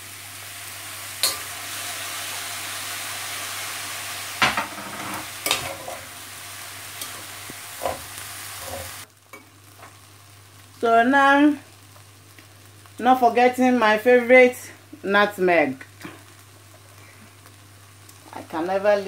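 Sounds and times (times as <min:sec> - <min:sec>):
food sizzling in a pan: 0:00.0 - 0:19.0
metal spatula scraping pan: 0:04.5 - 0:06.1, 0:07.0 - 0:09.0.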